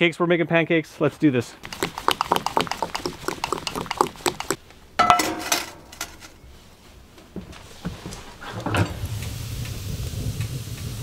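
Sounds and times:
handling sounds: 0:01.6 - 0:06.6
ringing metal clank: 0:05.0 - 0:06.3.

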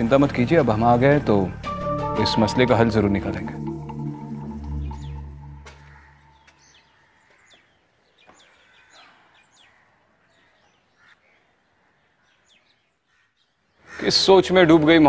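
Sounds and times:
low held music tone: 0:01.4 - 0:06.0.

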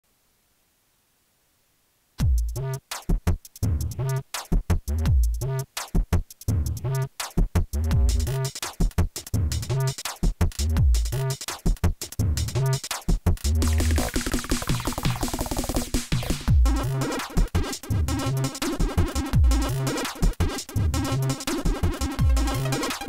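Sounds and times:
stuttering electronic music: 0:12.6 - 0:23.0.

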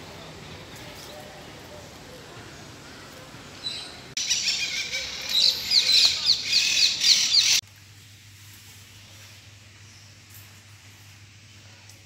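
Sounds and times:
birds chirping: 0:00.0 - 0:07.6.

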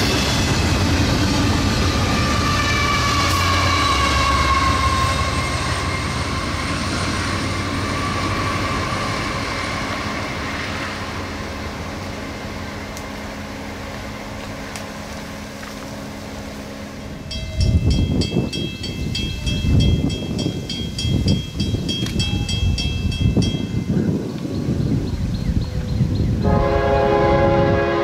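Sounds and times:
freight train wheels squealing: 0:00.0 - 0:11.4
diesel locomotive engine drone: 0:00.0 - 0:28.0.

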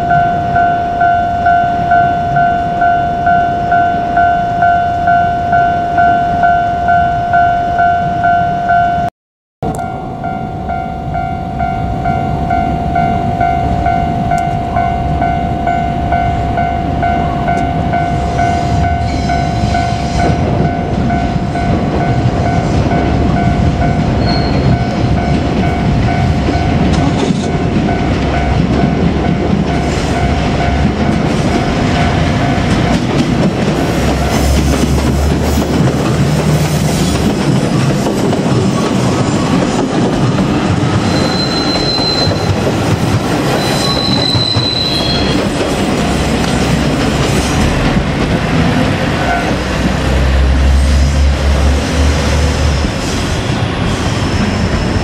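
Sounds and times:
high wheel squeals: 0:11.4 - 0:20.5, 0:24.2 - 0:25.0, 0:40.9 - 0:42.7, 0:43.4 - 0:47.7, 0:52.2 - 0:55.0
train wheels clattering on rails: 0:17.5 - 0:55.0.

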